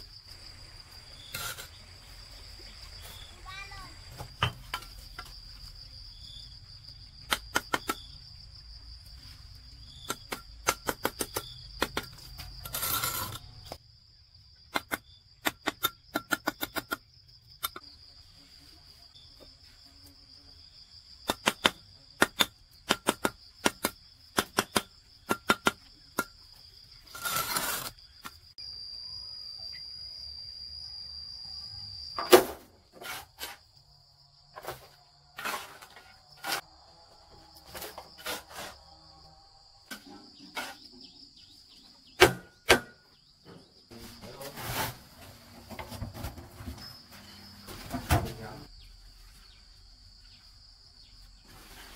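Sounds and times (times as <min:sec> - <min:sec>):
insects trilling: 0:00.0 - 0:51.9
trowel scrapes: 0:01.2 - 0:01.9, 0:12.6 - 0:13.6, 0:27.0 - 0:28.0, 0:33.0 - 0:33.7, 0:34.6 - 0:36.7, 0:37.7 - 0:38.9, 0:39.9 - 0:41.0
trowel tapping bricks: 0:07.2 - 0:08.1, 0:10.0 - 0:13.4, 0:14.7 - 0:17.0, 0:21.3 - 0:26.4.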